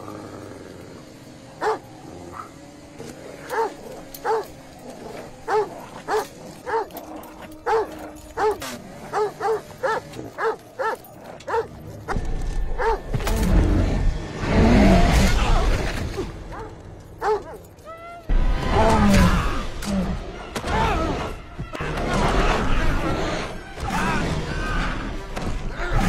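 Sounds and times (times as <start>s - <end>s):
dog barking: 1.6s - 2.6s, 3.5s - 4.5s, 5.5s - 7.0s, 7.6s - 11.7s, 12.8s - 13.0s, 16.5s - 17.6s.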